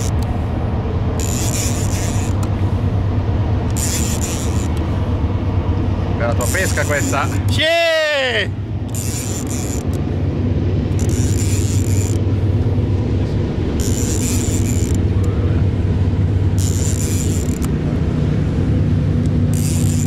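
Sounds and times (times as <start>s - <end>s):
fishing reel whirring: 0.0s - 0.4s, 1.2s - 2.8s, 3.6s - 5.2s, 6.2s - 7.6s, 8.8s - 10.1s, 10.9s - 12.4s, 13.6s - 15.5s, 16.4s - 17.8s, 19.2s - 20.0s
boat motor running: 0.0s - 20.0s.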